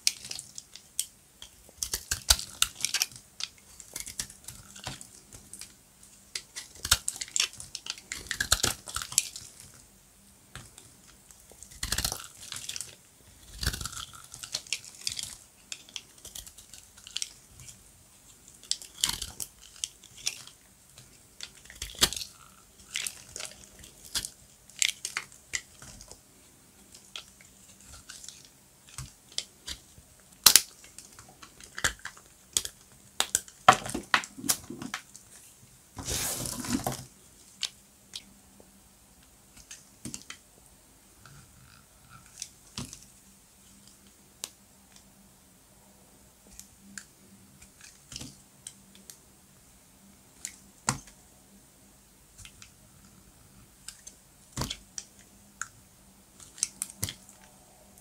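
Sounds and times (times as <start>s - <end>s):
dry soap crunching and crackling: 0.0s - 9.9s, 10.5s - 40.5s, 52.3s - 58.0s.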